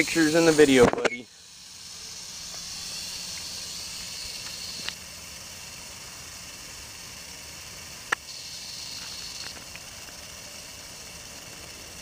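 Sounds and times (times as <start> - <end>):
rattlesnake rattling: 0.0 - 12.0.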